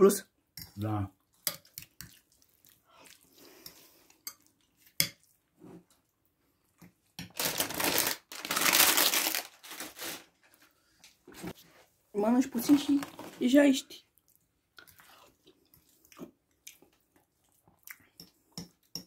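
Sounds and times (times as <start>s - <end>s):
rustling crumpling noise: 7.3s - 11.9s.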